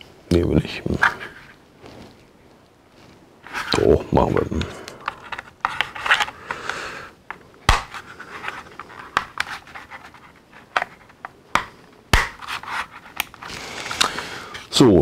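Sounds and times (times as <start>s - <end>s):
hard plastic rubbing and scraping: 3.0s - 14.8s.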